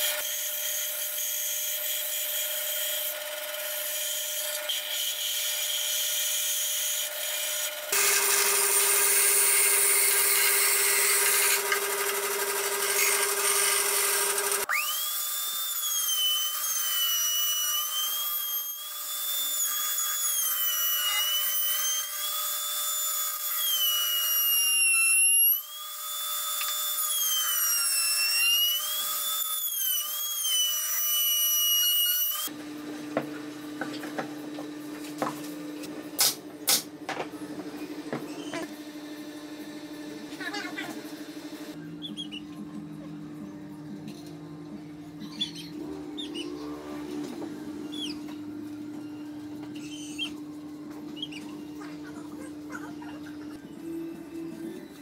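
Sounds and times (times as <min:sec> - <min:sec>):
router motor high whine: 0:00.0 - 0:31.0
bandsaw cutting wood: 0:00.0 - 0:32.6.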